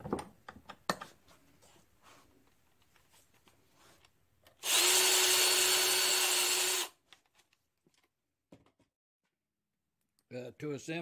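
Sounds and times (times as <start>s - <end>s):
power tool whining: 4.6s - 7.0s.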